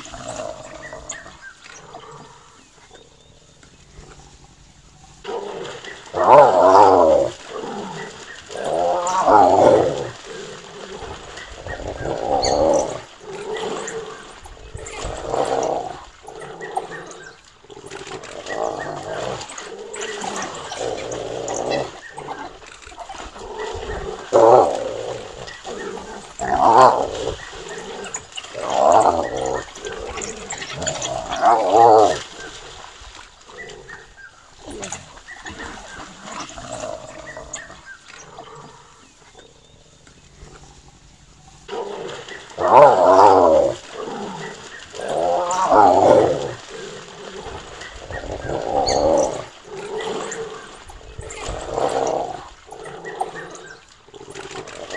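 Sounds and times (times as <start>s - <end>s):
water splashing: 0.0s - 54.9s
wild dogs snapping and calling: 0.0s - 54.9s
hyena calling: 5.5s - 14.4s, 20.3s - 32.5s, 42.3s - 50.7s.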